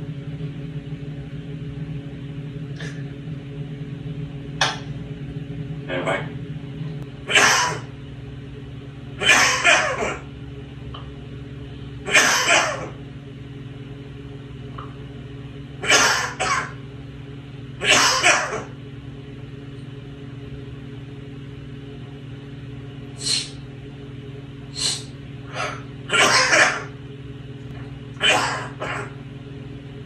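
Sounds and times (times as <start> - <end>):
parrot coughing: 7.2 - 7.9, 9.2 - 10.3, 12.0 - 13.0, 15.8 - 16.8, 17.8 - 18.8, 24.8 - 27.0, 28.2 - 29.2.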